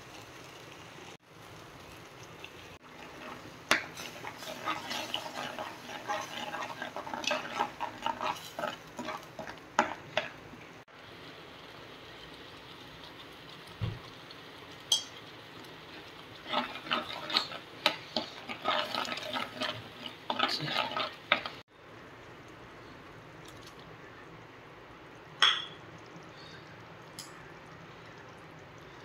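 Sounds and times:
gravy sizzling: 0.0 - 29.0
metal spoon scraping clay pot: 3.9 - 10.0, 16.5 - 21.5.

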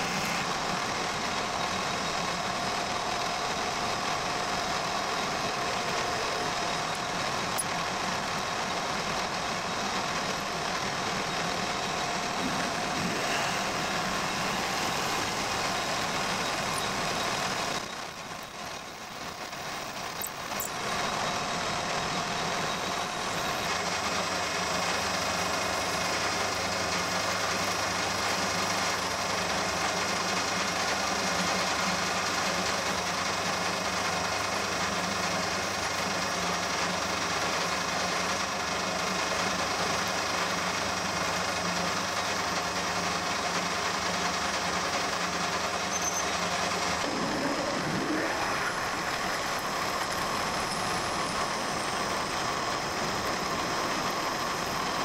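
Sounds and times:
metal lathe humming: 5.1 - 18.5.

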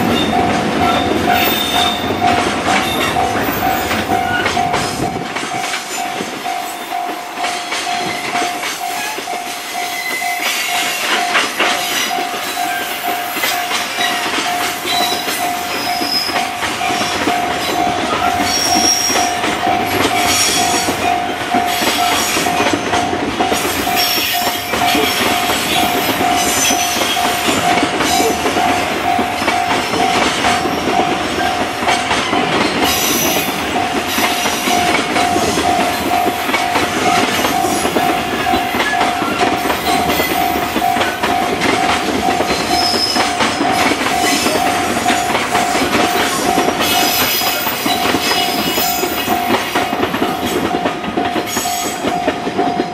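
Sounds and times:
level-crossing alarm bell: 0.0 - 52.9
train wheels clattering: 0.0 - 52.9
wheel squeals: 7.6 - 22.9, 42.2 - 45.3.

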